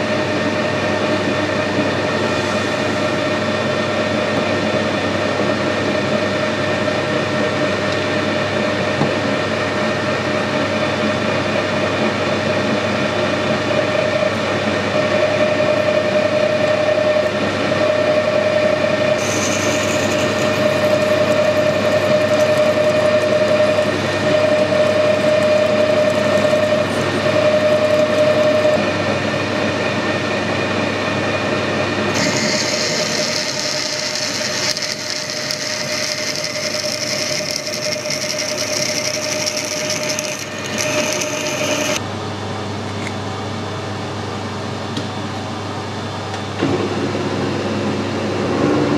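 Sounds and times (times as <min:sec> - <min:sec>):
metal lathe humming and whining: 0:00.0 - 0:42.2
drill boring into steel: 0:19.2 - 0:28.8, 0:32.1 - 0:42.0.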